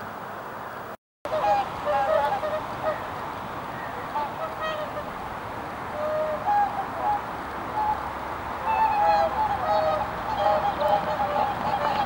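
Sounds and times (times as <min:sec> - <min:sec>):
swans honking: 0:01.3 - 0:05.2, 0:05.9 - 0:12.0.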